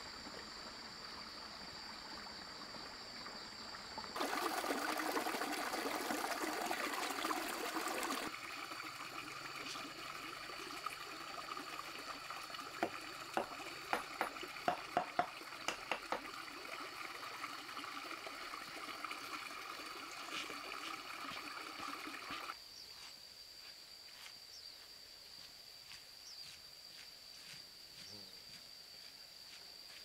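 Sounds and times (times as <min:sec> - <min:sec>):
stream trickling: 0:00.0 - 0:22.6
high insect tone: 0:06.9 - 0:30.0
sharp knocks: 0:12.8 - 0:16.3.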